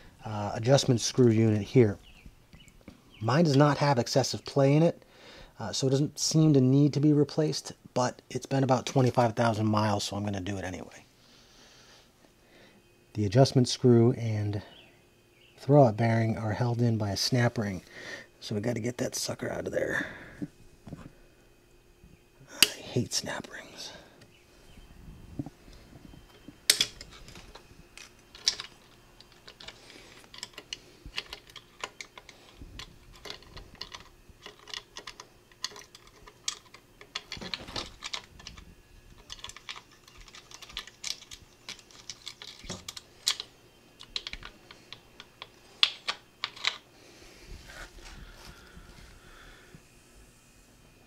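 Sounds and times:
pliers and metal parts clicking: 0:26.7 - 0:38.6, 0:39.2 - 0:46.8.

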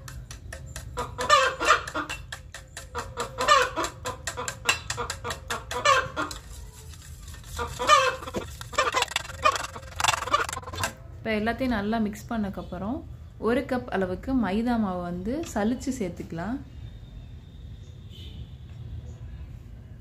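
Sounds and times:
hens clucking: 0:00.9 - 0:06.7, 0:07.4 - 0:11.0
whisk clicking against steel bowl: 0:01.8 - 0:10.9.

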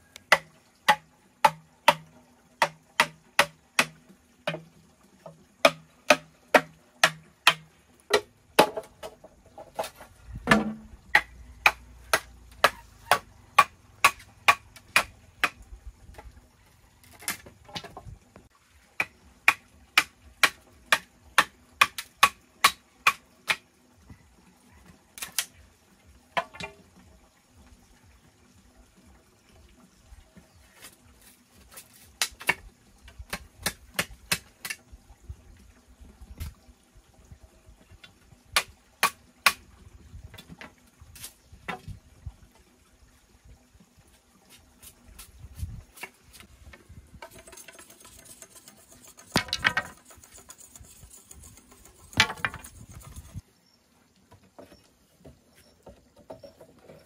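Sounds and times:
bamboo knocks and taps: 0:00.1 - 0:16.3, 0:17.2 - 0:23.6, 0:26.4 - 0:26.8, 0:30.8 - 0:34.8, 0:38.0 - 0:39.6, 0:40.3 - 0:42.0, 0:45.2 - 0:47.8, 0:49.3 - 0:50.0, 0:52.1 - 0:53.0
bamboo rustling and scraping: 0:05.2 - 0:16.4, 0:17.0 - 0:18.5, 0:30.3 - 0:34.8, 0:40.2 - 0:42.0, 0:44.0 - 0:53.4, 0:54.3 - 0:57.0.

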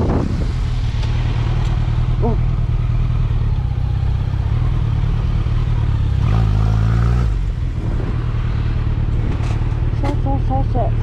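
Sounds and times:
wind rumble on microphone: 0:00.0 - 0:02.6, 0:07.2 - 0:11.0
motorcycle engine running: 0:00.0 - 0:11.0.

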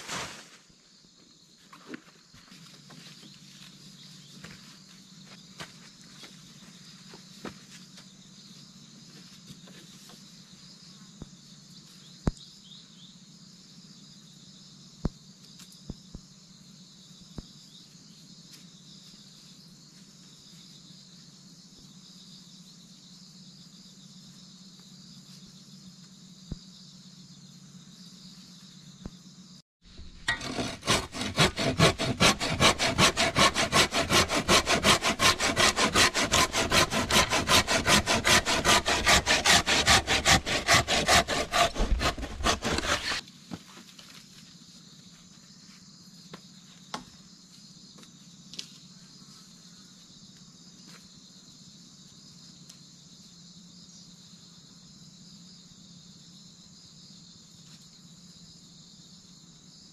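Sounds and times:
hand saw cutting branch: 0:30.2 - 0:43.2.

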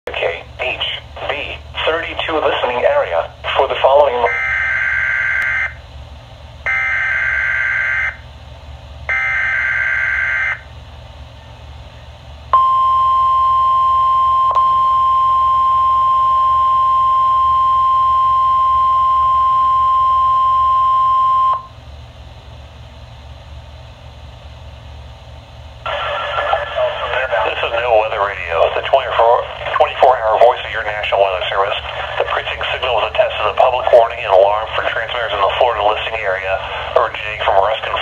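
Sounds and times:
steady warning alarm tone: 0:00.1 - 0:05.8, 0:06.6 - 0:08.3, 0:09.1 - 0:10.7, 0:12.5 - 0:21.8, 0:25.9 - 0:38.0.

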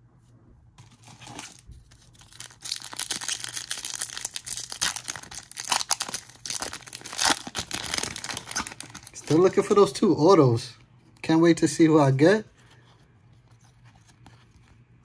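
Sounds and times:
card pack wrapper crinkling: 0:00.8 - 0:09.8.

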